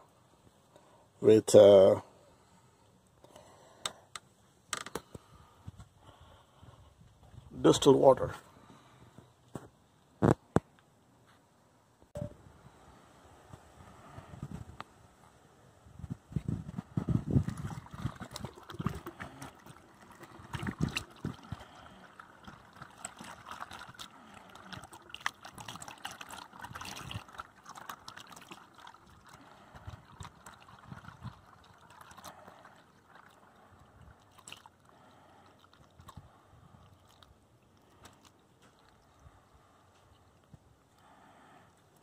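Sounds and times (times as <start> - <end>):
water trickling into a funnel: 17.2 - 39.4.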